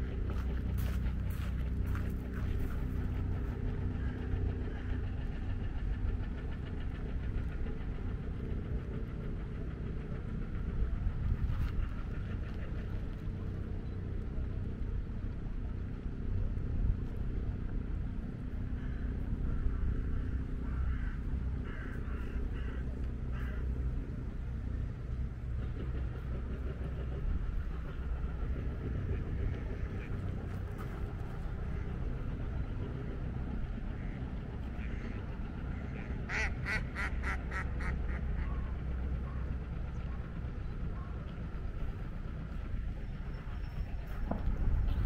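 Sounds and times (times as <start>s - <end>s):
steady low rumble: 0.0s - 45.0s
ducks quacking: 33.9s - 38.8s.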